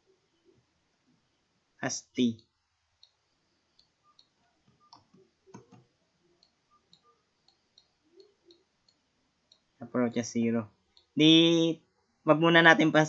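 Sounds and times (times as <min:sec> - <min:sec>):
faint computer mouse clicks: 0:03.0 - 0:05.8.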